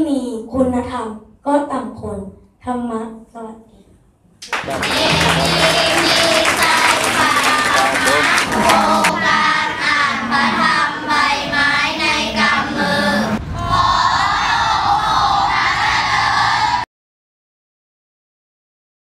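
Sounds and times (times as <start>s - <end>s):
crowd noise: 4.4s - 16.8s
children singing in unison: 4.6s - 16.8s.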